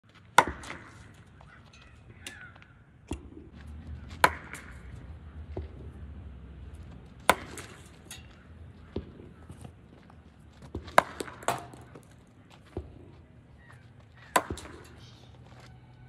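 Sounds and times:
cricket bat striking ball: 0.4s - 1.0s, 4.2s - 4.9s, 7.2s - 8.1s, 10.7s - 12.1s, 14.3s - 14.8s.

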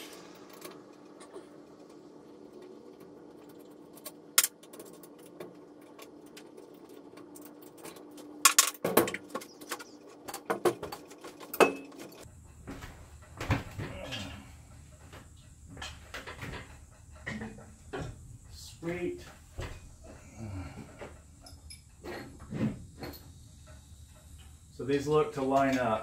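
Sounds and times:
metal clinks and clanks: 21.4s - 22.4s.

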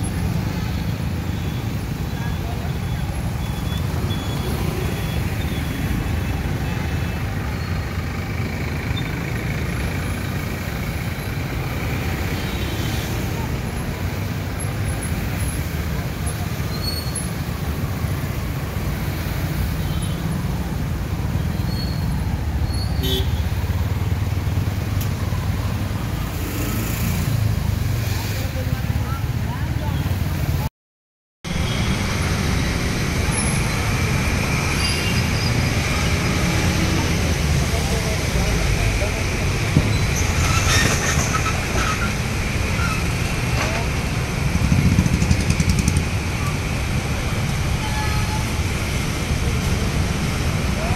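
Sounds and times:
heavy vehicles through floodwater: 0.0s - 30.7s, 31.5s - 50.9s
motorcycle and scooter engines: 0.0s - 30.7s, 31.5s - 50.9s
engines running at low speed: 43.4s - 47.3s.

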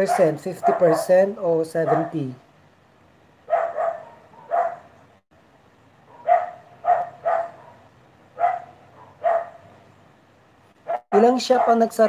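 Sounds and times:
dog barking: 0.0s - 2.2s, 3.5s - 5.0s, 6.1s - 9.7s, 10.8s - 11.9s.

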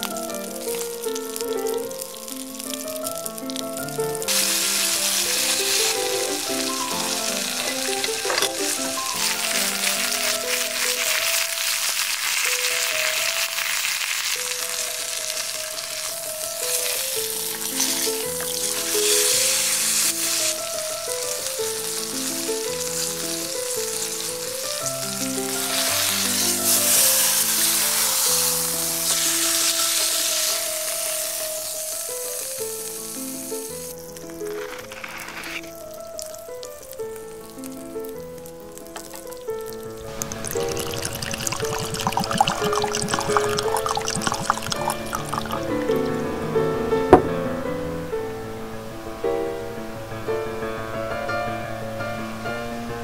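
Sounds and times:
melodic background music: 0.0s - 11.7s, 35.7s - 49.6s
steak sizzling in skillet: 0.0s - 47.0s.

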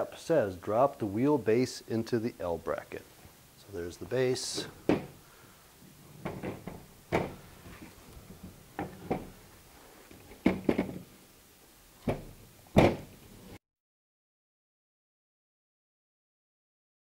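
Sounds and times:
wooden parts knocking: 4.6s - 5.2s, 6.2s - 9.4s, 10.2s - 11.1s, 12.0s - 13.2s.

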